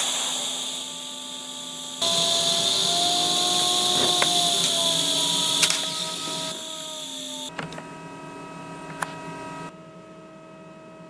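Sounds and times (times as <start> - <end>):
welding arc hiss and buzz: 0.0 - 7.5.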